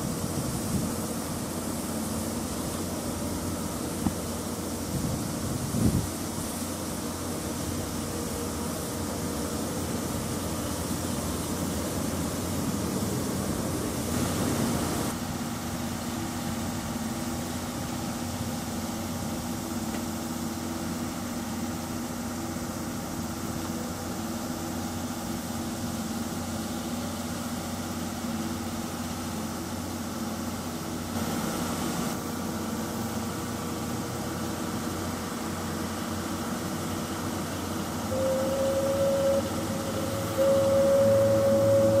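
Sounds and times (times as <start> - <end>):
steam hiss: 0.0 - 42.0
low mechanical drone: 37.5 - 42.0.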